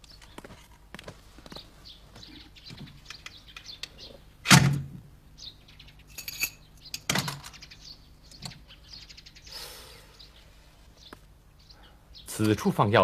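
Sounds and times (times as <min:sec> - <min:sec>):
faint bird chirps: 0:01.5 - 0:04.3, 0:05.4 - 0:12.7
metal keys jingling: 0:06.1 - 0:06.7.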